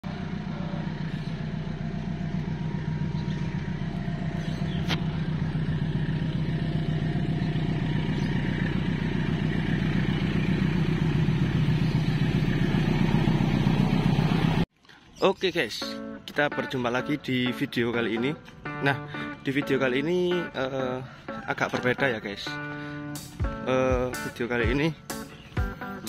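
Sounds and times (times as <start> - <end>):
locomotive engine drone: 0.0 - 14.7.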